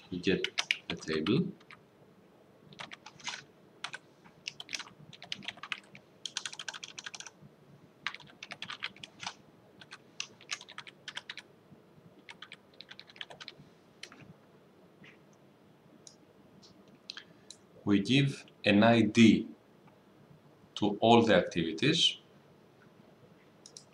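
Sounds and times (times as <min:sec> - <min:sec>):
typing on computer keyboard: 0:00.4 - 0:01.8, 0:02.7 - 0:07.4, 0:08.0 - 0:11.5, 0:12.2 - 0:14.2.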